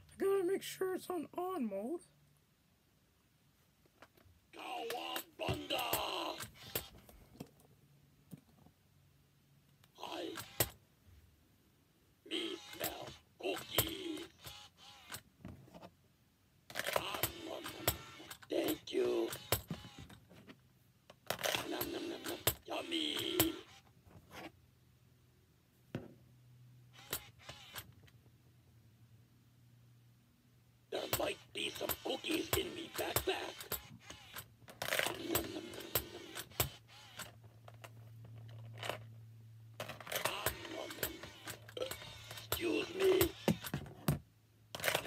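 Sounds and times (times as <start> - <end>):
talking toy recorded voice: 0.0 - 2.2, 4.5 - 6.9, 9.8 - 10.7, 12.2 - 15.1, 16.7 - 20.0, 21.3 - 23.8, 30.9 - 37.2, 39.8 - 43.8, 44.8 - 45.0
toy mouth mechanical clicks: 4.6 - 6.9, 9.9 - 10.7, 12.3 - 15.2, 16.7 - 19.9, 21.3 - 23.8, 31.0 - 37.3, 40.0 - 43.7.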